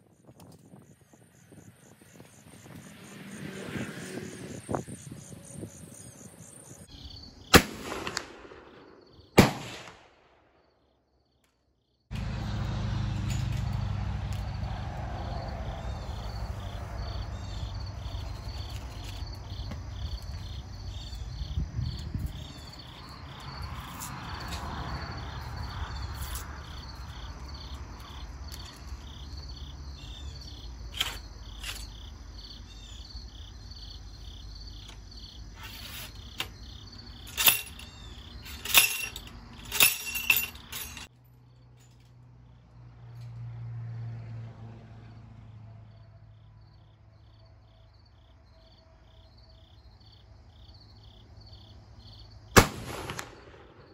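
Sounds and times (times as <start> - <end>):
insects trilling: 0.1 - 7.6, 14.4 - 40.9, 46.0 - 52.6
rifle metallic clicks: 52.6 - 53.7.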